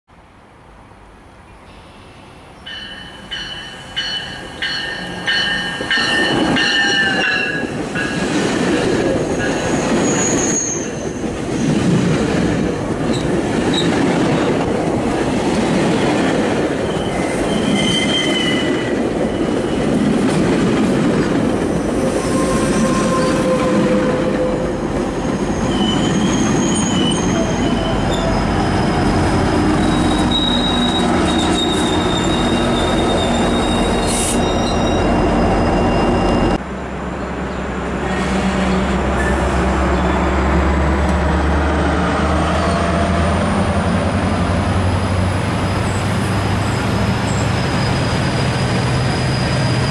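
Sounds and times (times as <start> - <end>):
diesel locomotive engine rumble: 1.7 - 49.9
train wheels rumbling on rail: 1.7 - 49.9
high-pitched wheel and brake squeals: 9.3 - 11.7, 16.8 - 20.0, 21.8 - 29.1, 29.7 - 36.6, 38.1 - 40.4, 44.9 - 49.9.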